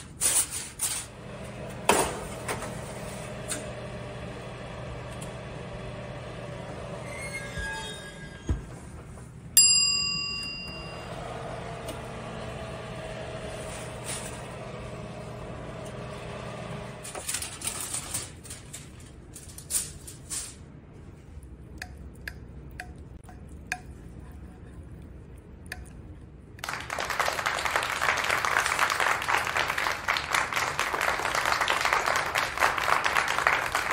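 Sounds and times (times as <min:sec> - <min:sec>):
oven hum: 0:00.0 - 0:26.4
aluminium foil crinkling: 0:17.2 - 0:20.6.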